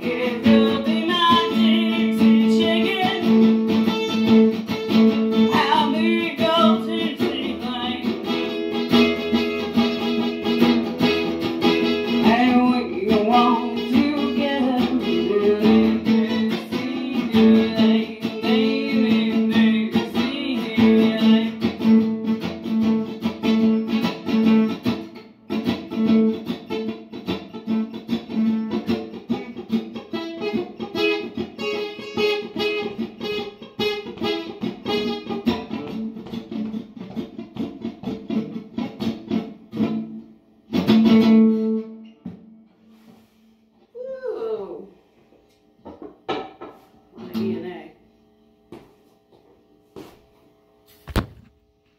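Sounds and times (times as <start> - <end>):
person singing: 0.0 - 3.4, 5.4 - 8.2, 12.2 - 21.7
acoustic guitar strumming: 0.0 - 43.4.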